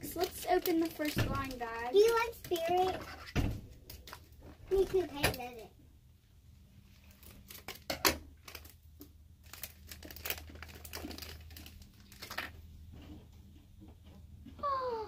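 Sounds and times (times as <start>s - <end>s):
plastic bag being torn open: 0.1s - 2.3s, 7.1s - 12.6s.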